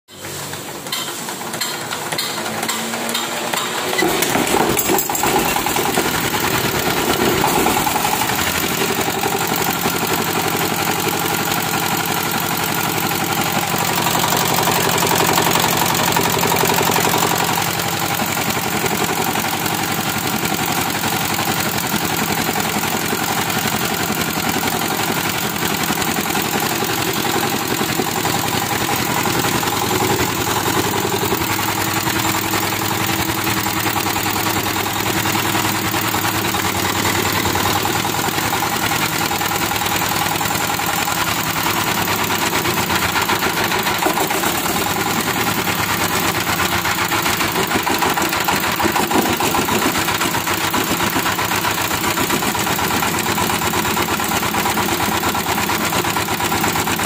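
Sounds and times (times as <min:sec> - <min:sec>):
hand-cranking knocks: 0:00.1 - 0:08.5
diesel engine running: 0:00.1 - 0:57.0.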